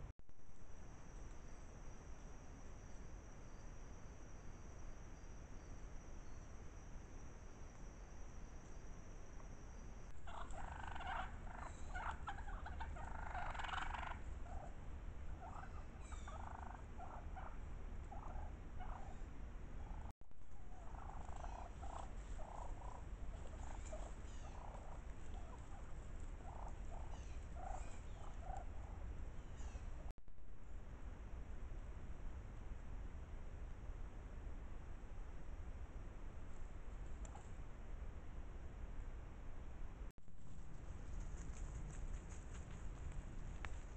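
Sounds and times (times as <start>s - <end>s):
wild turkeys calling: 10.1s - 19.2s, 19.8s - 30.1s.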